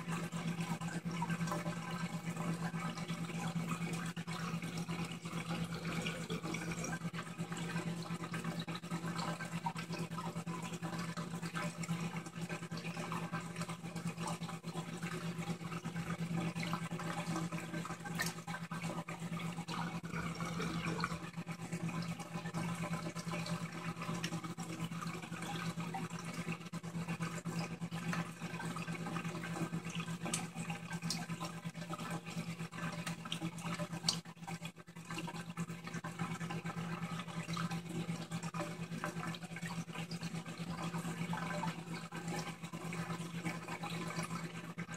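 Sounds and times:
pump humming: 0.0s - 44.9s
water bubbling and gurgling: 0.0s - 44.9s.

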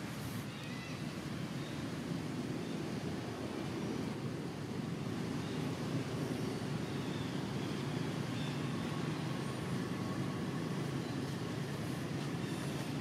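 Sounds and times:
low rumbling ambient noise: 0.0s - 13.0s.

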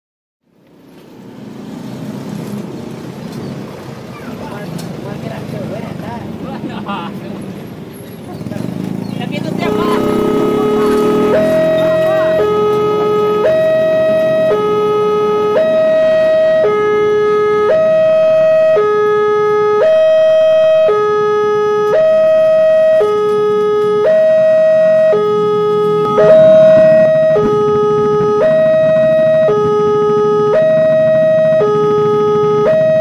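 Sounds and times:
level crossing two-tone alarm: 9.6s - 33.0s.

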